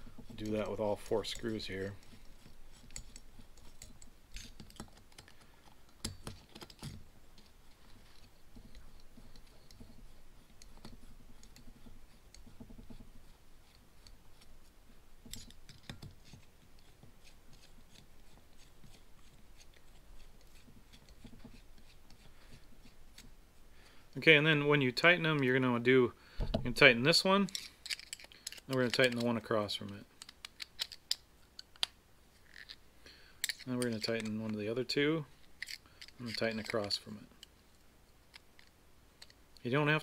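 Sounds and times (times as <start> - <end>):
light scraping of screws: 27.4 - 32.8, 33.4 - 37.6
small metallic clicks: 27.5 - 32.8, 35.6 - 37.6.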